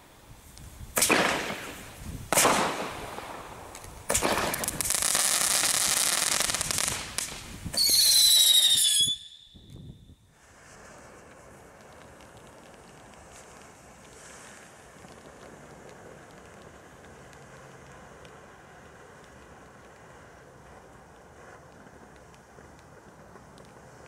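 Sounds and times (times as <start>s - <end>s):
firework crackling hiss: 0.0s - 24.0s
ground fountain firework hiss: 0.0s - 24.0s
firework bangs: 0.9s - 17.2s
firework high whistle: 4.1s - 11.0s.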